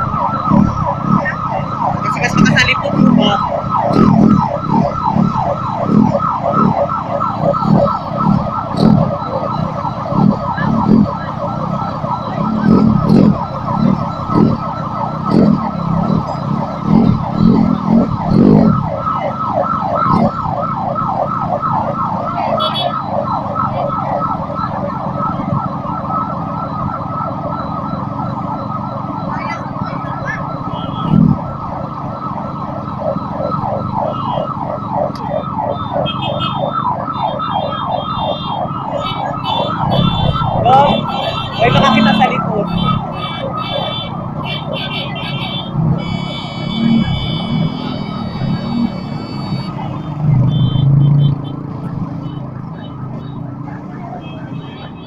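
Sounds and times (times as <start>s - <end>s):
electronic siren yelping: 0.0s - 55.0s.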